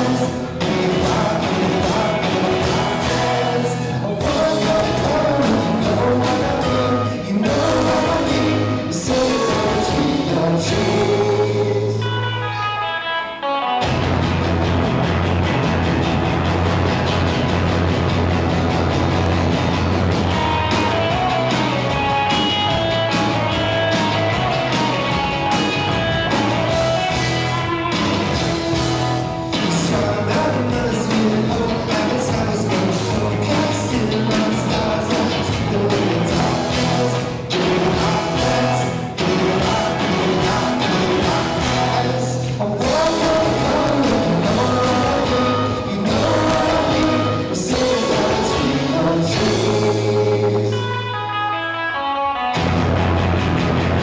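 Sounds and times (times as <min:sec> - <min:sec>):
person singing: 0:00.0 - 0:13.8, 0:28.3 - 0:52.6
rock band playing live: 0:00.0 - 0:54.0.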